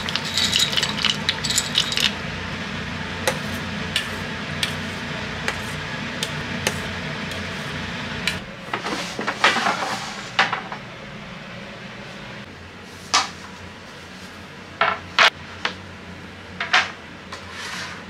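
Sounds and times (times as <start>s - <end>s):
boiling water bubbling: 0.0s - 2.2s
crockery and tray clattering: 0.0s - 2.2s
metal utensil clinking in pot: 0.0s - 2.2s.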